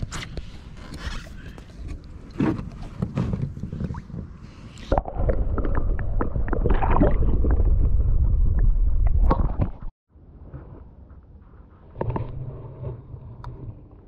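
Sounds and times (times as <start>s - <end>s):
underwater rumble and gurgling: 1.2s - 10.0s, 11.8s - 14.0s.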